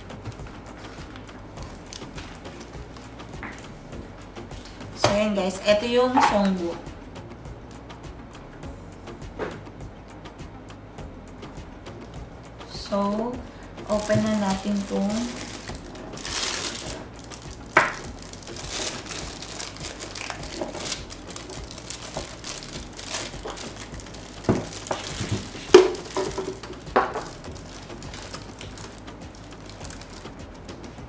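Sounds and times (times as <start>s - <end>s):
plastic bag crinkling: 13.9s - 30.5s.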